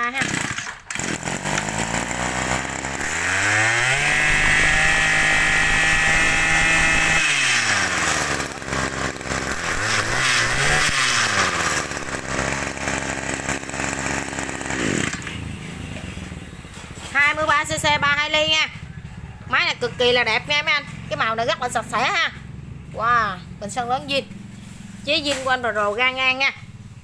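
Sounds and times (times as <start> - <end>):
brush cutter engine revving: 0.0 - 16.4, 24.0 - 26.9.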